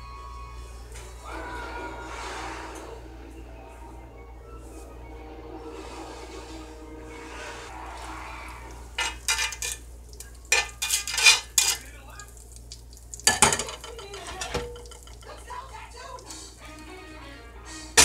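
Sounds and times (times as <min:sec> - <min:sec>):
butter sizzling in oil: 0:08.9 - 0:16.7
skillet clattering and scraping: 0:09.0 - 0:09.9, 0:10.5 - 0:11.9.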